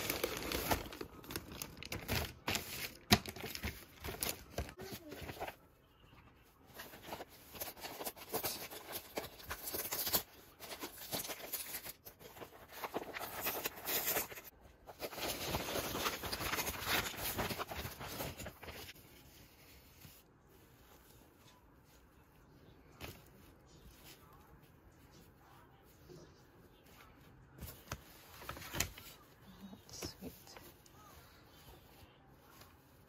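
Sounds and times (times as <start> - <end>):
packaging rustling and crinkling: 0.0 - 5.6, 6.8 - 19.0.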